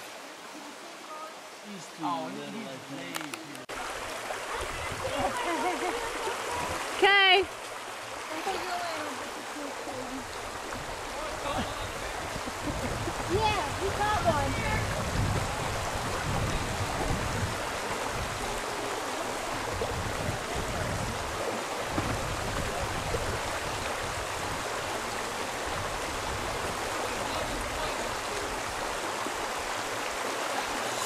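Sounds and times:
river water flowing: 0.0s - 31.0s.

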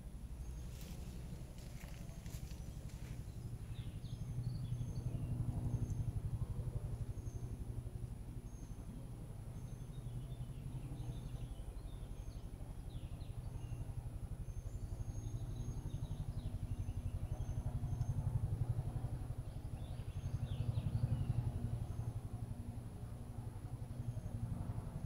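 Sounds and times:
pulsing low motor hum: 0.0s - 25.0s.

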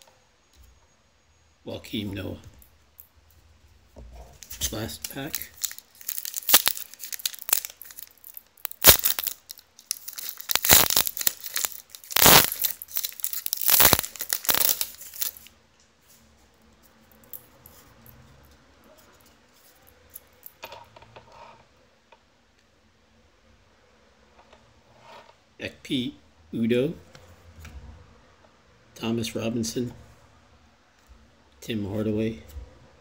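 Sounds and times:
faint handling sounds: 2.0s - 21.7s
card pack wrapper tearing and crinkling: 4.4s - 15.5s.

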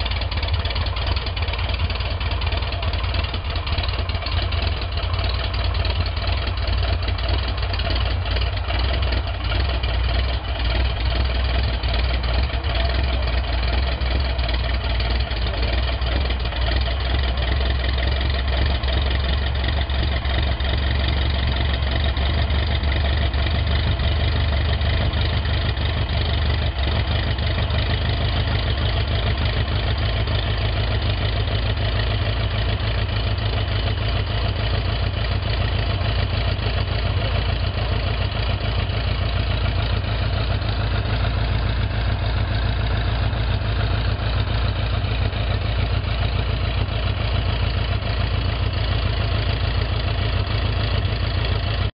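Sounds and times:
light aircraft engine idling: 0.0s - 51.9s.

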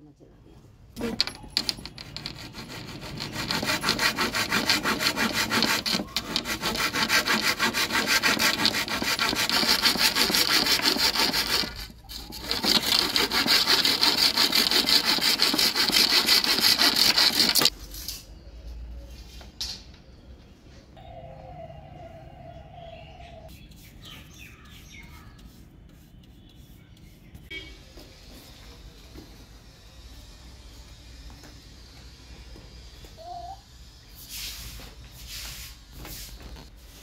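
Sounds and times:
handsaw cutting wood: 1.0s - 17.7s.

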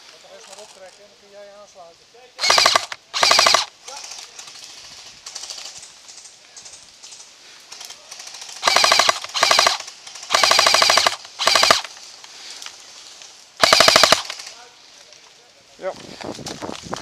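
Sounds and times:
airsoft gun full-auto bursts: 2.4s - 4.2s, 8.1s - 11.9s, 13.6s - 14.6s.

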